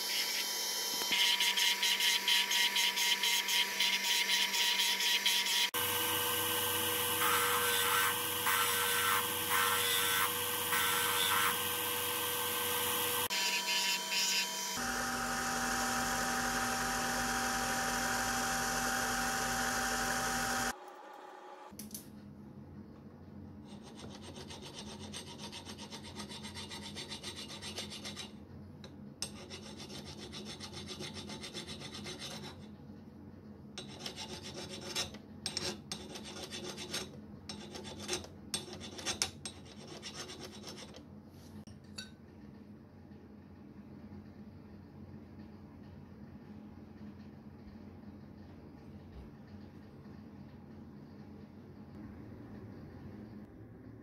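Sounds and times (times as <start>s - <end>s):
grinding machine running: 14.8s - 21.7s
hand file rubbing on metal: 23.6s - 28.4s, 29.2s - 32.7s, 33.8s - 41.0s.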